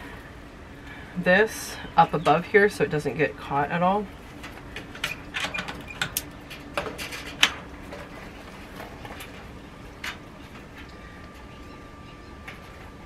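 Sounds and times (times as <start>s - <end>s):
small fan humming: 0.0s - 13.0s
power cord clicking against wire mesh: 4.4s - 7.6s.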